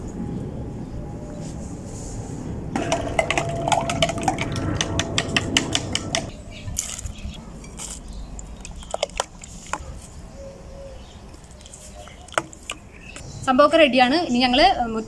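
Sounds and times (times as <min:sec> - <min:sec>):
utensil clinking against bowl: 0:02.8 - 0:06.3.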